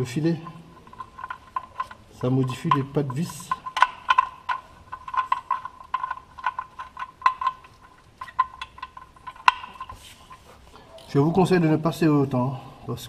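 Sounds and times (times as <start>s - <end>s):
ratchet wrench clicking: 0.8s - 10.2s.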